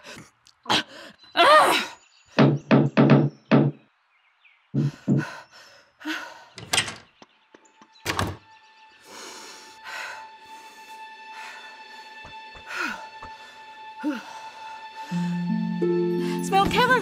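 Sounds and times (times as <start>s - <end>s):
knuckles knocking on wooden door: 2.4s - 3.8s
door moving: 6.6s - 7.2s, 8.0s - 8.5s
soft music: 6.7s - 17.0s.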